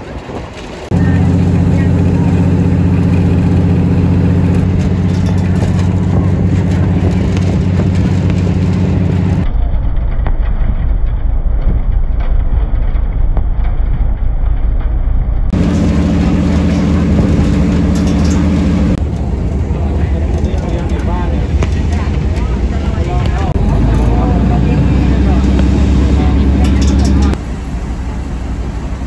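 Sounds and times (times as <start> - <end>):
diesel train engine droning: 0.0 - 9.5, 15.2 - 29.0.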